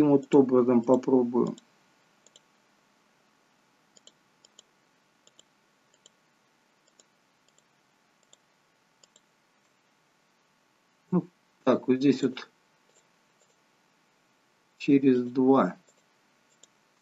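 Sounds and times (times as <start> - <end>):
computer mouse clicks: 0.2 - 2.5, 3.9 - 6.2, 6.8 - 9.8, 12.9 - 13.6, 15.8 - 16.8.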